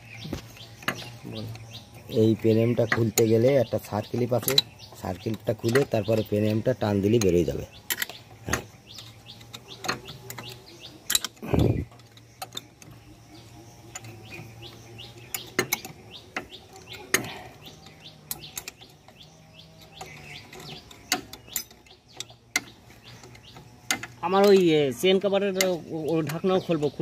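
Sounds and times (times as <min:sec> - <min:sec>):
birds chirping: 0:00.0 - 0:27.0
metal clinks of tools and gears: 0:02.4 - 0:13.0, 0:15.3 - 0:24.8.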